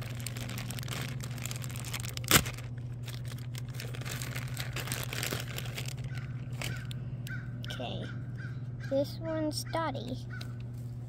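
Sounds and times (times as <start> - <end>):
plastic bag crinkling and tearing: 0.0 - 6.9
steady low hum: 0.0 - 11.0.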